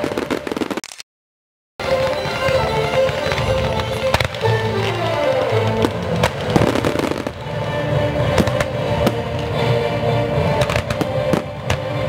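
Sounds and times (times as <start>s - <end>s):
fireworks exploding: 0.0s - 0.8s, 1.8s - 12.0s
loud music soundtrack: 1.8s - 12.0s.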